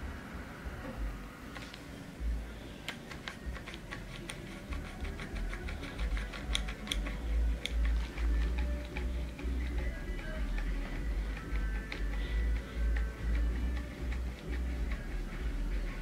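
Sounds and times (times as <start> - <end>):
plastic grabber tool clicking: 2.9 - 15.0.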